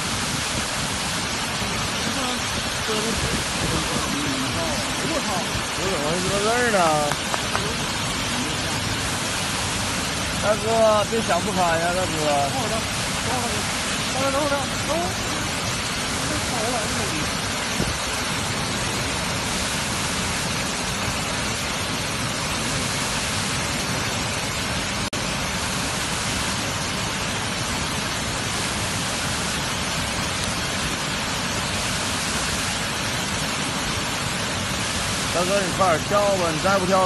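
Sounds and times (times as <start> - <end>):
waterfall rushing: 0.0 - 37.0.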